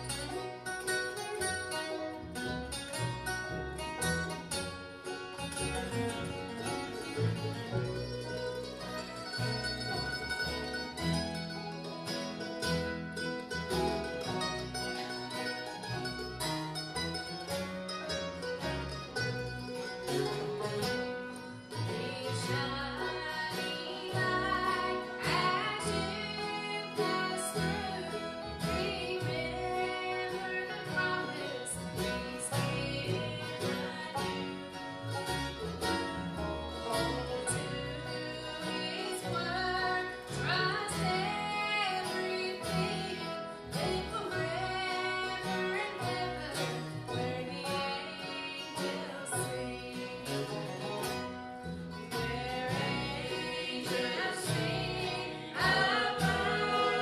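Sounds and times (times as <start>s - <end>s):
bluegrass band playing: 0.0s - 57.0s
woman singing: 21.7s - 34.8s, 36.8s - 51.1s, 52.1s - 57.0s.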